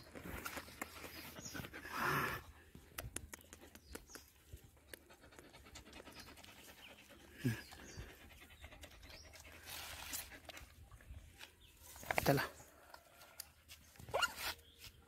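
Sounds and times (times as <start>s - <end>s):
dog panting: 0.5s - 2.5s, 4.6s - 10.4s.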